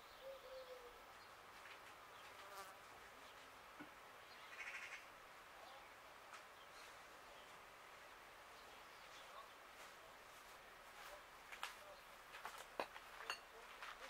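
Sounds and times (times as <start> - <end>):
insect buzzing past: 2.2 - 2.9.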